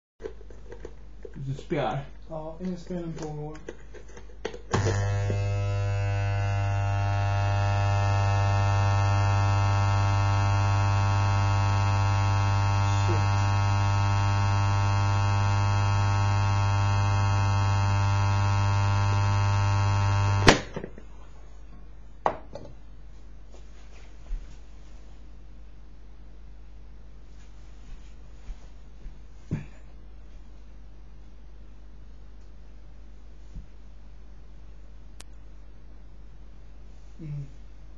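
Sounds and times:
transformer humming loudly: 4.8 - 20.6.

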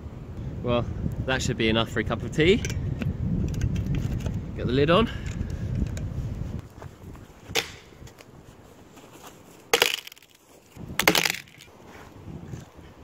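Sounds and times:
dead wood cracking: 9.7 - 11.7.

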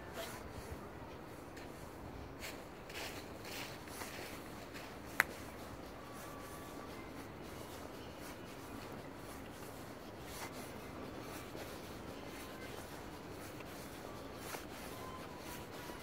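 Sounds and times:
footsteps on asphalt: 1.1 - 5.9.

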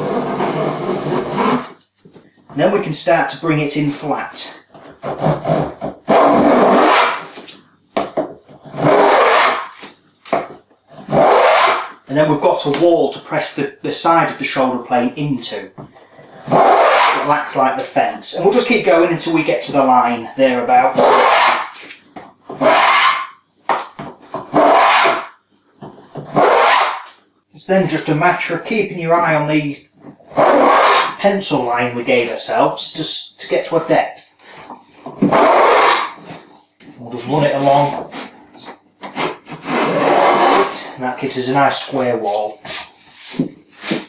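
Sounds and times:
plane shaving wood: 0.0 - 1.8, 4.8 - 7.4, 8.6 - 9.9, 11.0 - 12.0, 16.3 - 17.3, 21.0 - 21.8, 22.6 - 23.3, 24.4 - 25.3, 26.2 - 27.0, 30.3 - 31.2, 35.2 - 36.4, 39.1 - 40.9.

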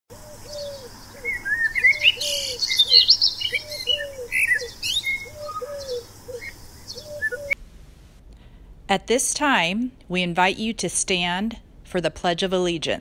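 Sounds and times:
birds chirping and trilling: 0.1 - 7.6
low bird call: 0.1 - 7.6.

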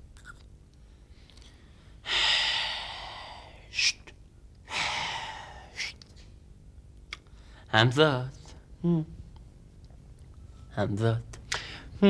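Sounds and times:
man sighing heavily: 4.7 - 5.8.

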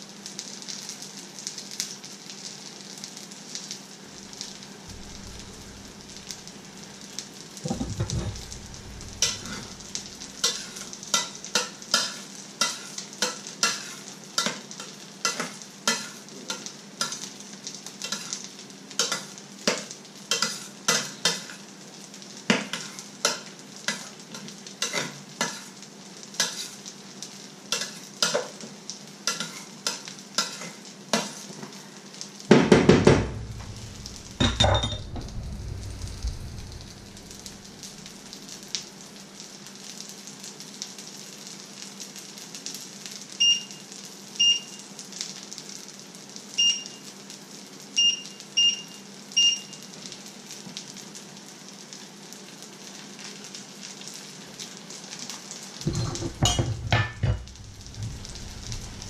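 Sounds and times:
food frying sizzle: 0.0 - 59.0
loud thumps: 7.6 - 10.4, 32.5 - 38.4, 55.9 - 59.0.

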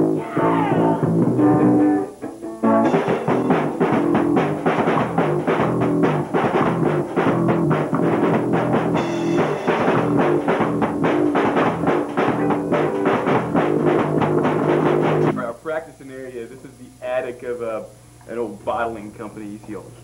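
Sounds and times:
electric guitar: 0.0 - 15.4
bass guitar: 0.0 - 15.6
drum kit beat: 0.0 - 16.3.

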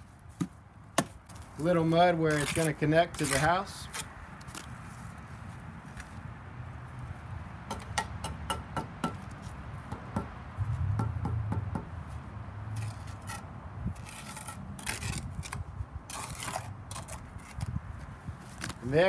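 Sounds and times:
trowel tapping and scraping brick: 2.3 - 4.6.

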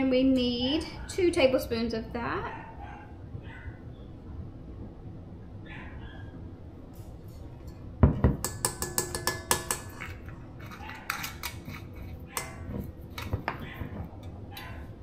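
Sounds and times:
metal kitchenware clinking: 7.3 - 14.8.

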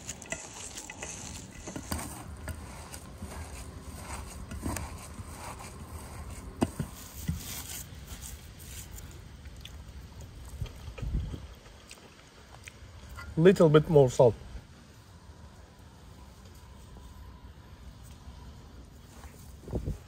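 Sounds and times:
hands squishing onion filling: 0.0 - 9.9.

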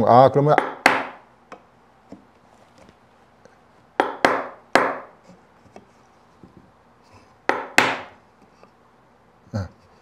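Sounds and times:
wood-on-wood knocks: 4.0 - 5.1, 7.5 - 8.2.

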